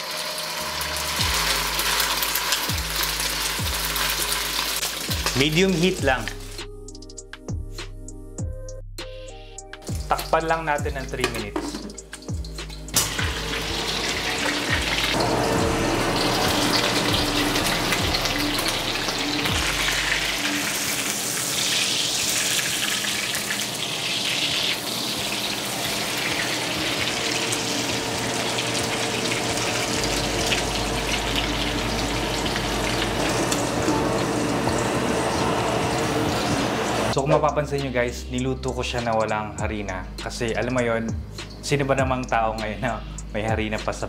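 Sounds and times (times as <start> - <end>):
oil sizzling in a wok: 0.0 - 5.4, 11.8 - 37.2.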